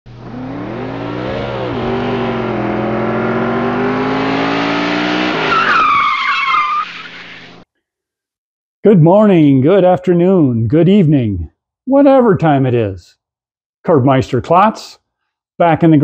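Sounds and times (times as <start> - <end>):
car engine revving: 0.1 - 6.0
tyres squealing: 5.4 - 7.6.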